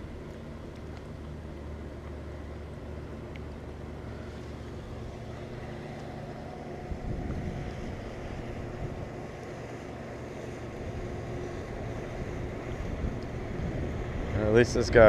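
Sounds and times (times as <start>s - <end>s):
motorboat engine droning: 0.0s - 15.0s
wind buffeting microphone: 5.0s - 15.0s.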